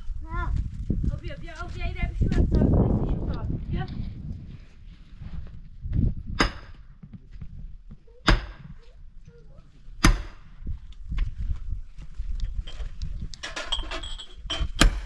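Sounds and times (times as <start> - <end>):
axe chopping wood: 10.0 - 10.4, 14.8 - 15.0.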